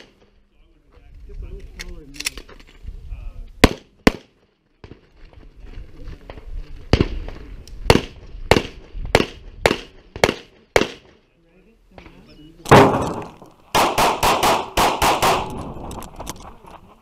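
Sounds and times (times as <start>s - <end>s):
pistol shots outdoors: 0.0s - 0.4s, 3.6s - 5.0s, 6.9s - 11.2s, 12.6s - 16.1s.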